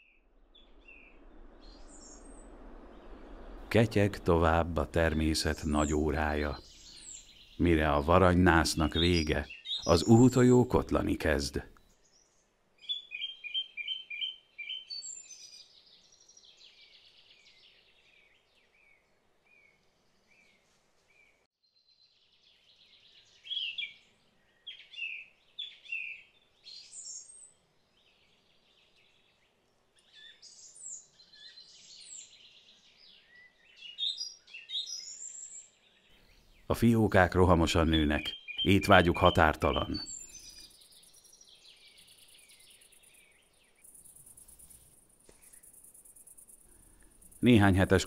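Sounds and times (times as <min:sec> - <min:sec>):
songbirds chirping: 0:00.0 - 0:48.0
faint background hiss: 0:00.5 - 0:13.6, 0:35.1 - 0:48.0.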